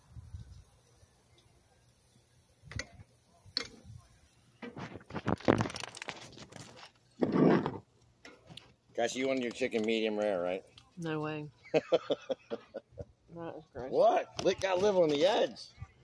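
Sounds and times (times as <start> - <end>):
microphone handling noise: 7.2 - 7.9.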